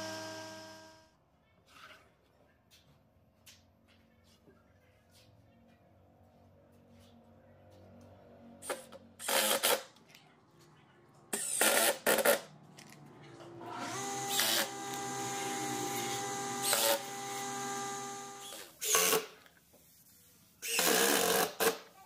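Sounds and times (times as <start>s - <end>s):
cordless drill running: 0.0s - 1.0s, 13.8s - 19.2s.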